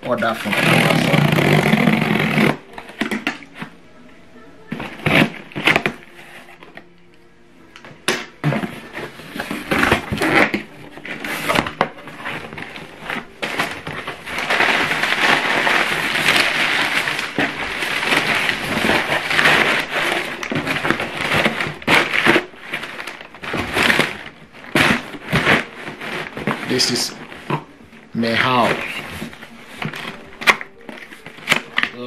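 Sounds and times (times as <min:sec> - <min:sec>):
packing paper crinkling: 0:00.0 - 0:03.7, 0:04.7 - 0:06.9, 0:08.2 - 0:32.0
scraping on cardboard box: 0:08.4 - 0:27.7.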